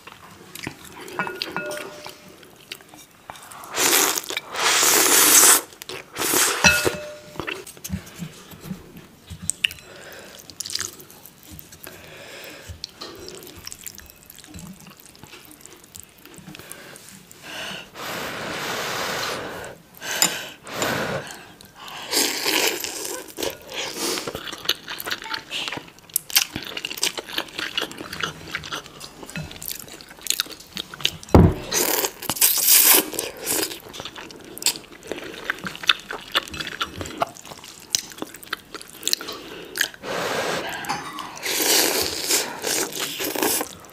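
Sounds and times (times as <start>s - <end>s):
slurping noodles: 3.3s - 6.8s, 17.8s - 19.8s, 20.6s - 24.4s, 39.3s - 43.8s
chewing: 9.3s - 17.4s, 21.6s - 40.0s.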